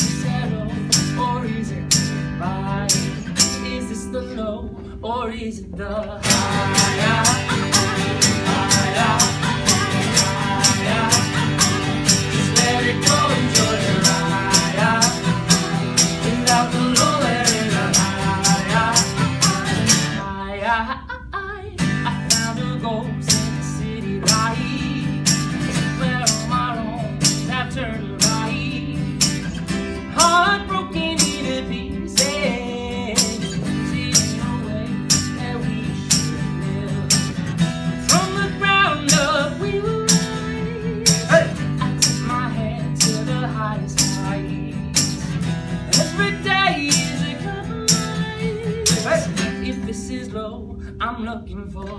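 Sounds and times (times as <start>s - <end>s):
hand percussion beat: 0.0s - 3.8s, 6.2s - 20.2s, 22.2s - 22.7s, 23.3s - 23.6s, 24.2s - 49.6s
acoustic guitars strumming: 0.0s - 20.9s, 21.8s - 51.9s
wordless singing: 0.0s - 25.1s, 38.1s - 44.5s, 45.9s - 51.9s.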